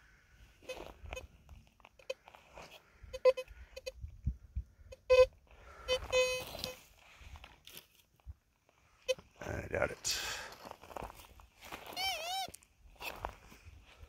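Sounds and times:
metal detector long tone: 0.6 - 4.0, 4.9 - 7.0, 11.8 - 12.5
metal detector beeps: 2.0 - 4.0, 4.9 - 6.9, 11.9 - 12.5
thumps and scuffs on gravelly soil: 9.2 - 14.0.

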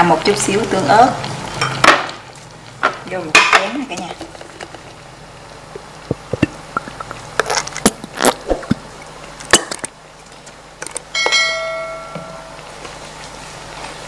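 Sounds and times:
ringing clang: 11.2 - 12.6.

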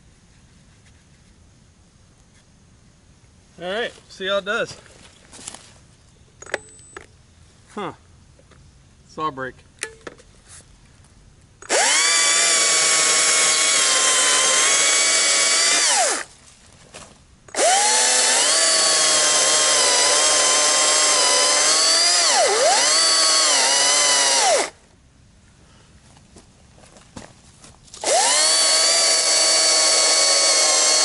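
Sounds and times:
battery chainsaw cutting log: 11.6 - 16.3, 17.5 - 24.8, 28.0 - 31.0.

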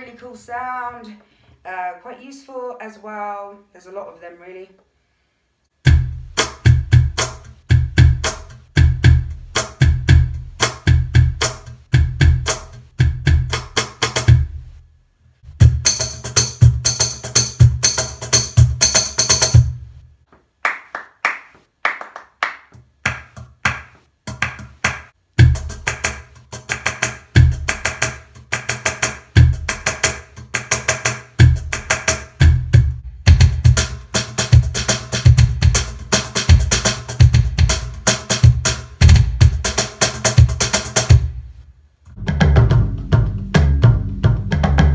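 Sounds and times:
cajon groove: 5.8 - 14.8, 15.4 - 19.9, 22.7 - 44.9
electronic kick-like bass hits: 5.9 - 13.6, 25.4 - 25.8, 32.4 - 33.8, 39.0 - 39.7, 42.2 - 44.9
higher slaps: 20.3 - 25.1.

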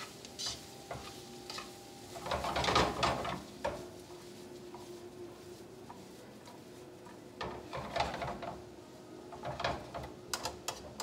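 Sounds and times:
tongs scraping in frying pan: 0.0 - 8.3
vegetables tossed and stirred: 0.0 - 8.6.

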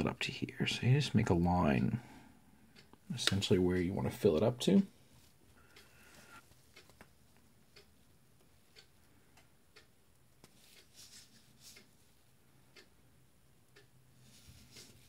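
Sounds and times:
soft ticking: 0.0 - 15.0
faint handling rustles: 10.4 - 12.2, 14.2 - 15.0.

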